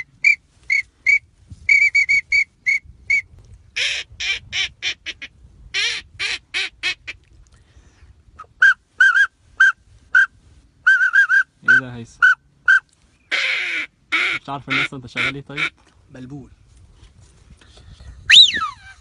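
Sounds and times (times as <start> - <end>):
man whistling duck calls: 0.0 - 4.4, 8.4 - 15.7, 18.3 - 19.0.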